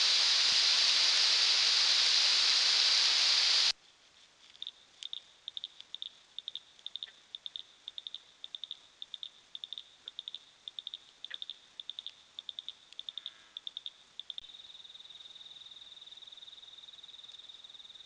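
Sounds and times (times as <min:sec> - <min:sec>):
faint hiss: 0:00.0 - 0:18.0
cricket chirping: 0:04.6 - 0:18.0.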